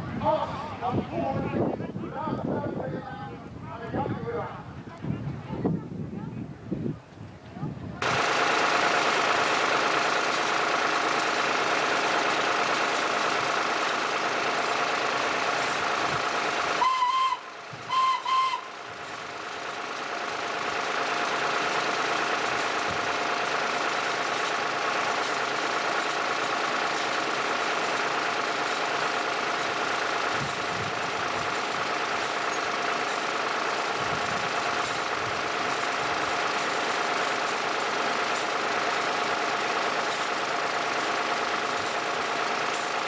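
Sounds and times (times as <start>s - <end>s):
farm machinery humming and whining: 8.0s - 43.0s
whistle toots: 16.8s - 18.7s.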